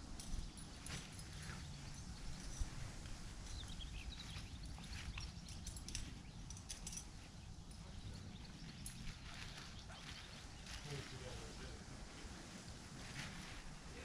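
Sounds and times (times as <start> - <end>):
wind rumble on microphone: 0.0 - 14.0
faint high chirps and ticks: 0.2 - 10.9.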